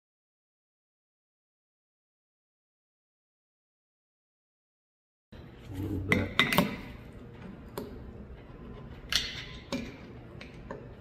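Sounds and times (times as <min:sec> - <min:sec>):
low steady background hum: 0:05.4 - 0:11.0.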